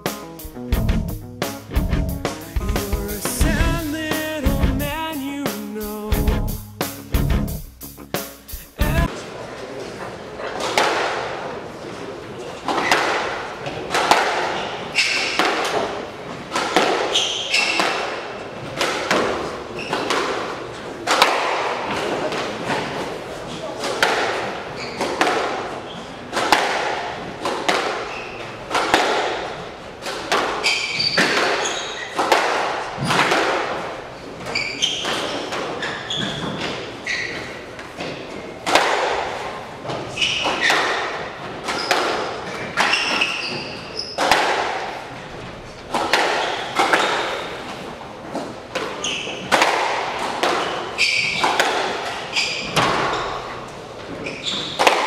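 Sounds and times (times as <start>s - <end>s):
shoes squeaking on wooden floor: 14.5s - 15.9s, 16.5s - 17.9s, 19.7s - 20.3s, 24.6s - 26.3s, 27.9s - 28.8s, 30.3s - 32.4s, 34.3s - 38.6s, 39.4s - 44.4s, 45.8s - 49.6s, 50.4s - 55.0s
squash ball echoing thuds: 23.9s - 34.0s, 38.0s - 43.3s, 44.0s - 45.0s, 45.9s - 47.6s, 48.7s - 53.2s.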